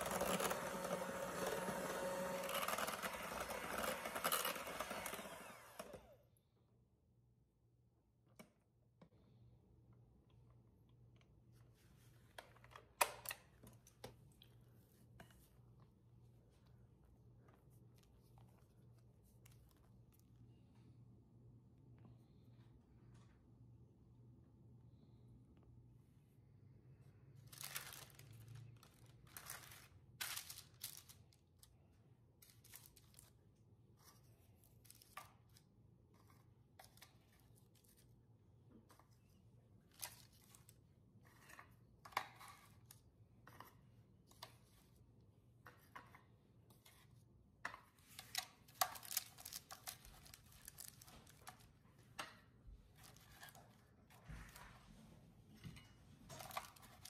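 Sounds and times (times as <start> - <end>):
parchment paper crinkling: 27.4 - 38.2, 38.8 - 45.1, 47.8 - 55.0, 56.2 - 57.0.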